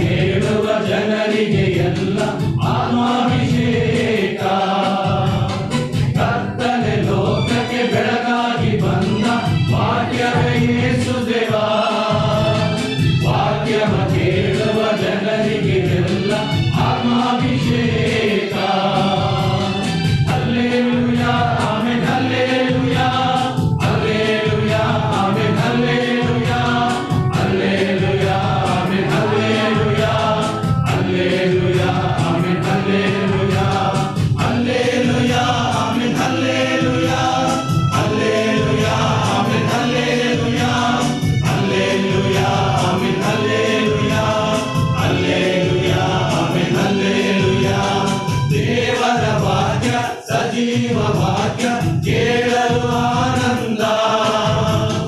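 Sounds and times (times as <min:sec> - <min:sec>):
men's choir singing a hymn: 0:00.0 - 0:55.0.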